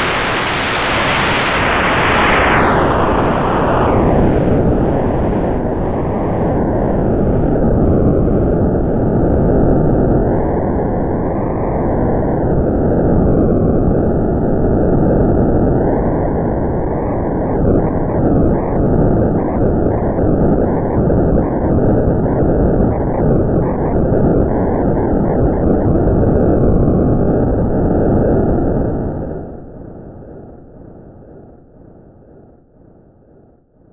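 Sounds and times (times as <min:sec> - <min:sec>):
synthesizer filtered hiss: 0:00.0 - 0:07.5.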